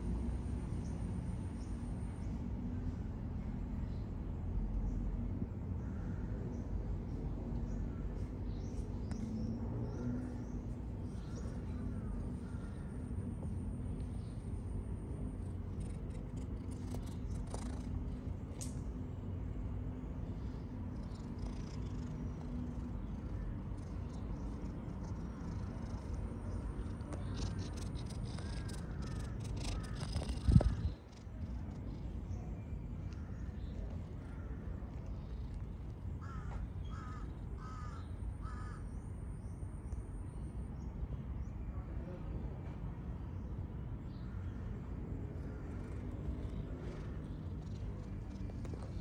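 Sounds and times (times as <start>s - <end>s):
low background rumble: 0.0s - 40.0s, 44.3s - 49.0s
cat purring: 8.2s - 32.7s, 34.9s - 36.2s, 45.0s - 49.0s
crow cawing: 36.2s - 38.8s.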